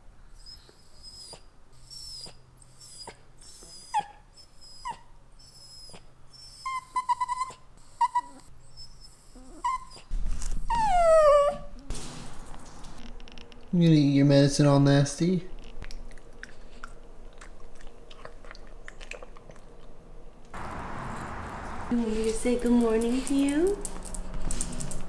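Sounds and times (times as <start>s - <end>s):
dog whining: 0.3s - 11.9s.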